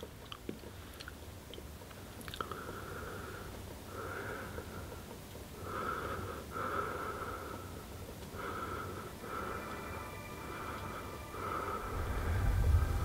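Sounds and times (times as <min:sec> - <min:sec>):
man breathing out heavily: 0:05.6 - 0:13.0.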